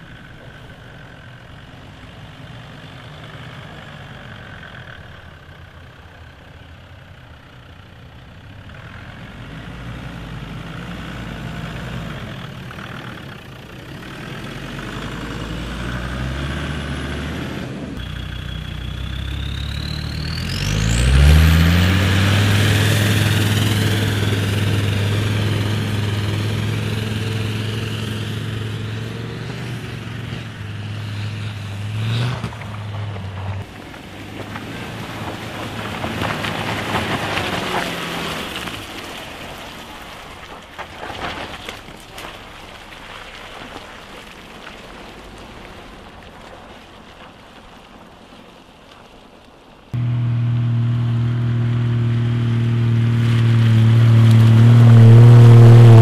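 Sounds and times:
off-road vehicle engines revving: 0.0 - 39.6, 49.9 - 56.0
steady low hum: 50.0 - 54.6
rising whine: 50.0 - 56.0.

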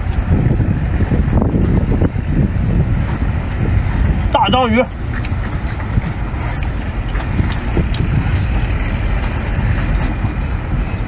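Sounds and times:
low outdoor rumble: 0.0 - 11.0
biting and chewing: 4.9 - 10.7.

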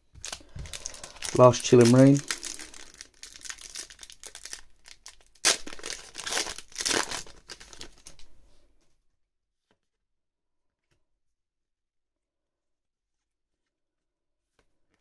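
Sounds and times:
foil wrapper tearing and crinkling: 0.2 - 8.3.

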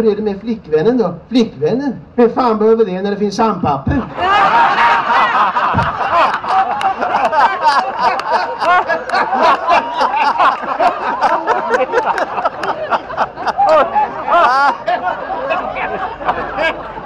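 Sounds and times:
audience laughing: 3.9 - 17.0.

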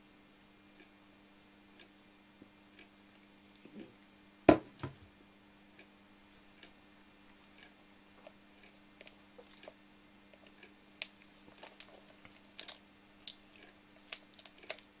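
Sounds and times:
clock ticking faintly: 1.7 - 2.0
plastic tube knocking on wooden shelf: 4.5 - 5.0.

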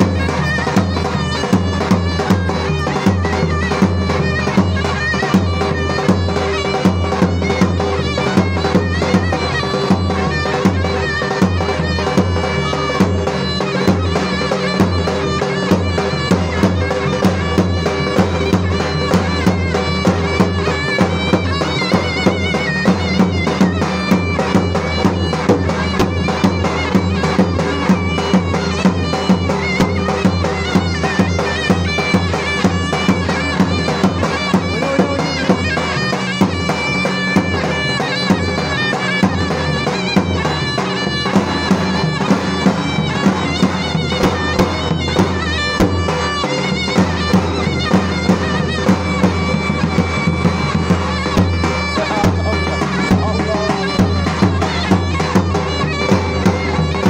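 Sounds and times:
steady drum beat: 0.0 - 57.0
zurna playing folk dance tune: 0.0 - 57.0.

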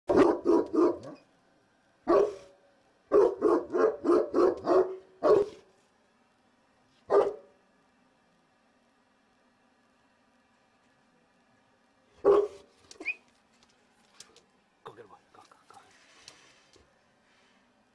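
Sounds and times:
dog barking deeply: 0.1 - 1.2, 2.1 - 2.5, 3.1 - 5.6, 7.1 - 7.5, 12.2 - 12.6.

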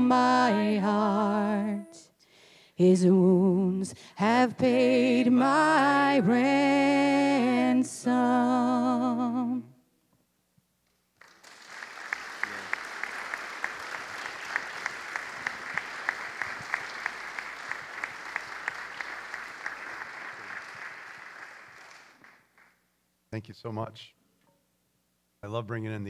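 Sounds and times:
congregation applauding: 11.1 - 22.8.

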